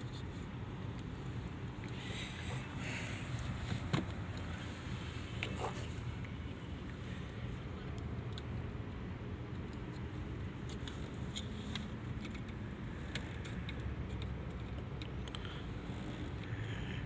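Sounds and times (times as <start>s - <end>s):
steady low rumble: 0.0s - 17.0s
small clicks of handled wires: 7.8s - 15.6s.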